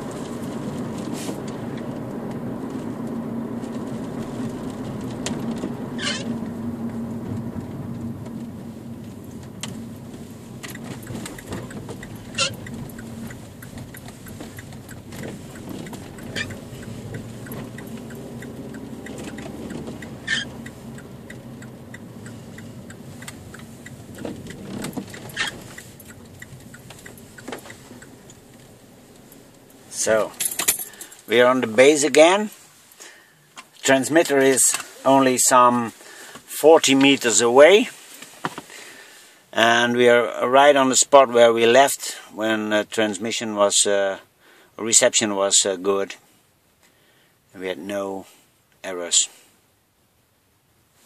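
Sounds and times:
car engine and road rumble: 0:00.0 - 0:51.0
sharp clicks and rattles: 0:00.2 - 0:31.7.

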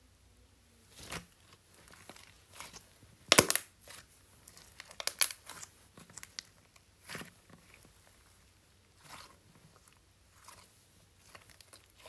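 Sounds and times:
slime crackling and popping: 0:01.9 - 0:07.9.

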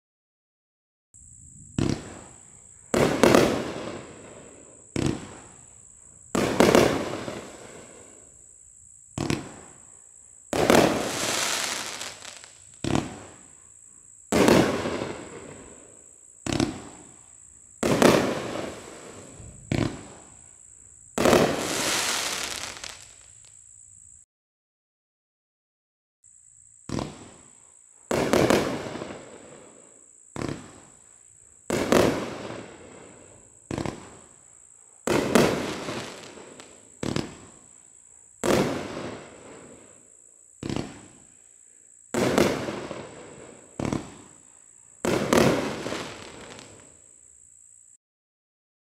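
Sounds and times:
firework launch crack: 0:01.7 - 0:05.6, 0:09.2 - 0:09.8, 0:10.5 - 0:13.4, 0:16.4 - 0:17.1, 0:17.8 - 0:20.3, 0:21.2 - 0:23.6, 0:26.9 - 0:29.5, 0:35.1 - 0:37.6, 0:40.6 - 0:41.2, 0:42.1 - 0:44.4, 0:45.0 - 0:46.9
firework aerial break: 0:10.6 - 0:13.2, 0:21.2 - 0:23.3.

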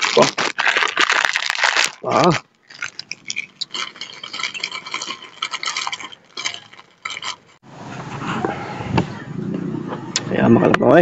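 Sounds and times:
plastic snack bag crinkling: 0:00.0 - 0:07.6.

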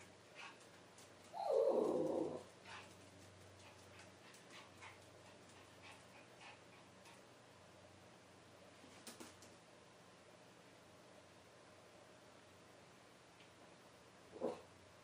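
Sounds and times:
puppy bark-whine: 0:14.3 - 0:14.7.

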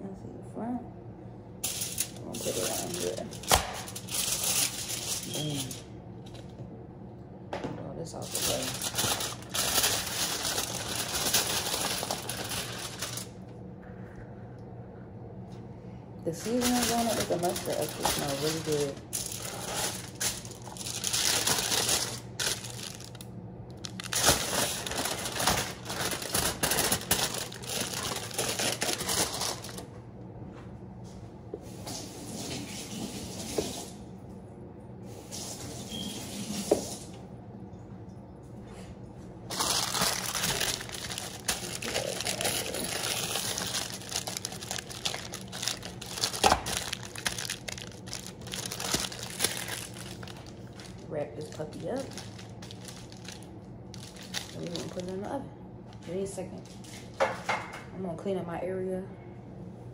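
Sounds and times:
aluminium foil crinkling: 0:01.6 - 0:06.5, 0:08.2 - 0:13.5, 0:16.3 - 0:29.9, 0:39.5 - 0:56.1.

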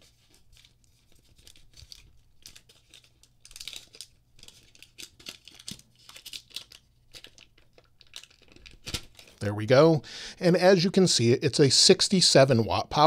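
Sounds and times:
plastic wrap crinkling and tearing: 0:00.0 - 0:09.4.

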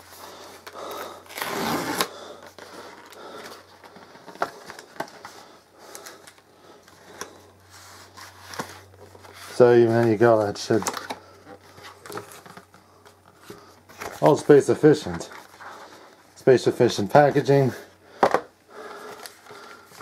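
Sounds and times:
cardboard packaging rustling: 0:00.0 - 0:07.0, 0:07.6 - 0:16.2.

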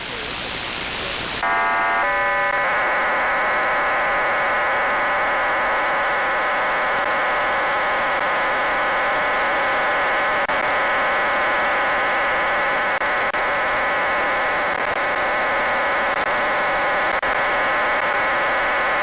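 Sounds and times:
buzz of parallel data tones: 0:00.0 - 0:19.0
short preamble tone: 0:01.4 - 0:06.2.

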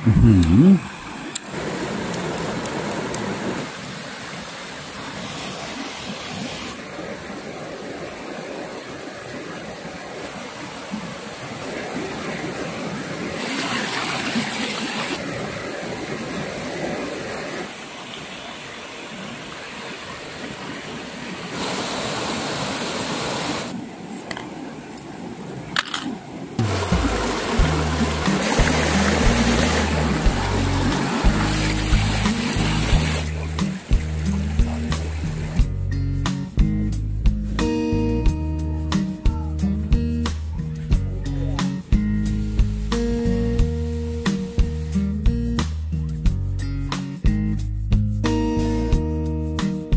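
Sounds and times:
stream rushing over rocks: 0:00.0 - 0:35.6, 0:42.3 - 0:45.0.

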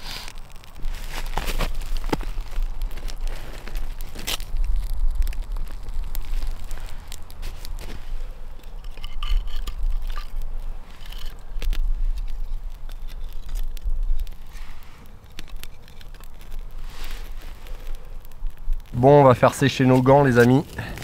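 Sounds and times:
fire crackling and popping: 0:00.0 - 0:21.0
sticks scraping and knocking: 0:05.4 - 0:18.8.

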